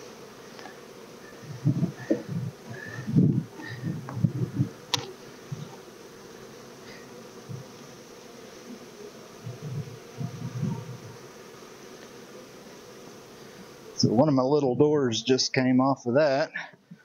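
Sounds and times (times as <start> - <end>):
bees buzzing: 0.0 - 17.0.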